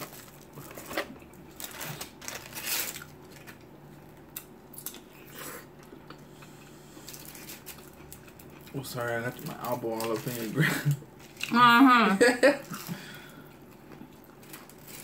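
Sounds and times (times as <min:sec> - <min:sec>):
chewing and biting food: 0:04.3 - 0:10.5.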